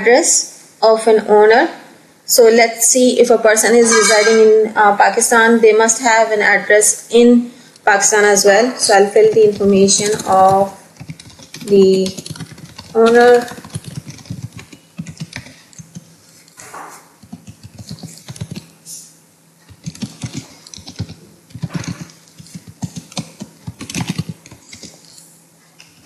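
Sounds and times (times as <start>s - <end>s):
typing on a computer keyboard: 9.2s - 16.6s, 17.2s - 18.7s, 19.7s - 25.2s.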